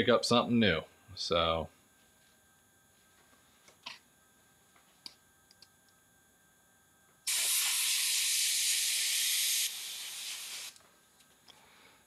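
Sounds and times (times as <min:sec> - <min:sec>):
airbrush hissing: 0:07.3 - 0:10.8.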